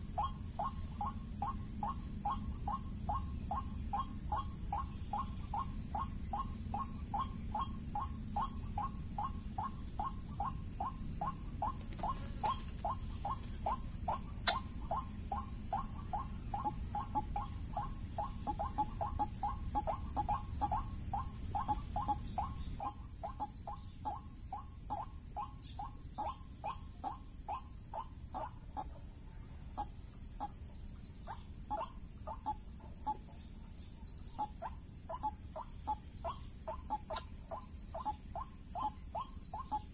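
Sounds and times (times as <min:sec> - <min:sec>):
waterhen clucking calls: 0:00.0 - 0:29.0.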